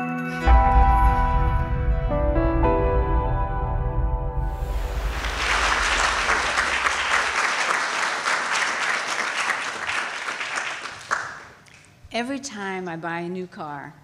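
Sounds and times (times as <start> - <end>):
audience applauding: 4.7 - 11.8.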